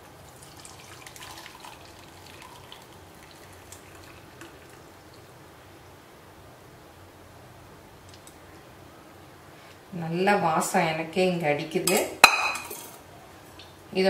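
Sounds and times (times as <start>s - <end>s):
tea pouring trickle: 0.0s - 5.4s.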